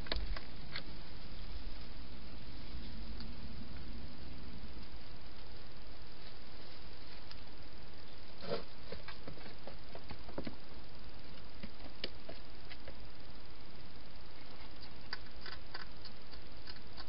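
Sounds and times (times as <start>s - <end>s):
steady hiss: 0.0s - 17.0s
hedgehog clicks and scuffs: 14.4s - 17.0s.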